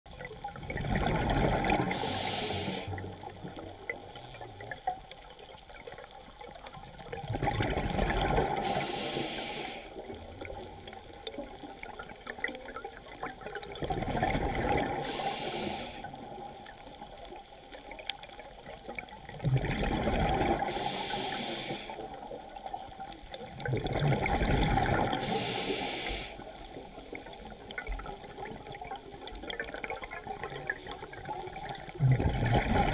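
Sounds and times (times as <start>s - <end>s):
exhaled bubbles gurgling: 0.1s - 32.9s
diver breathing through regulator: 1.7s - 3.0s, 8.5s - 10.0s, 14.9s - 16.2s, 20.5s - 22.2s, 25.0s - 26.6s.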